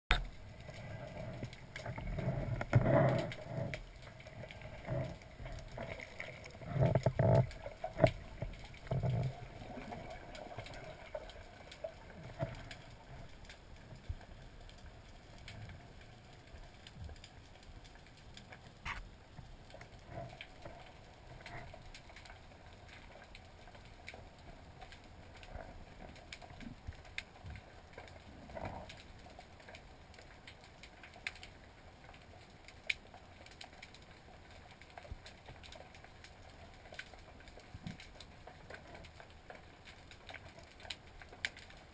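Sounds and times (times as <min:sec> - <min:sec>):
small underwater clicks: 0:00.1 - 0:41.9.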